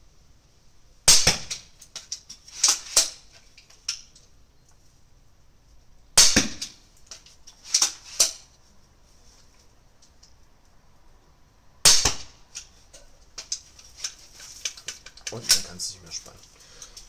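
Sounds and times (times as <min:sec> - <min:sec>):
crossbow shooting snaps: 0:11.9 - 0:12.4.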